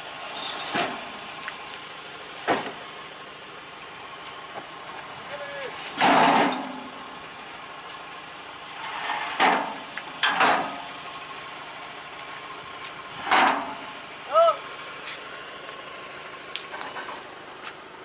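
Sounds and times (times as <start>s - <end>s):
engine running: 0.0s - 18.0s
metal ramps clanking and scraping: 0.3s - 1.3s, 2.4s - 2.8s, 5.8s - 7.4s, 8.6s - 11.2s, 12.9s - 14.0s, 16.7s - 17.4s.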